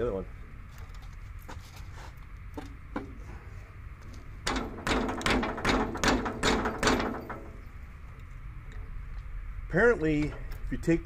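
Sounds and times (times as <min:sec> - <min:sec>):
wrench clanking on metal: 0:04.5 - 0:07.6.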